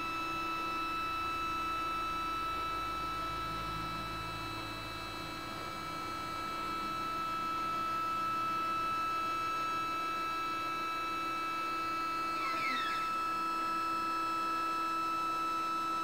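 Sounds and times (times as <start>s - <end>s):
stepper motors whining: 12.4s - 13.5s.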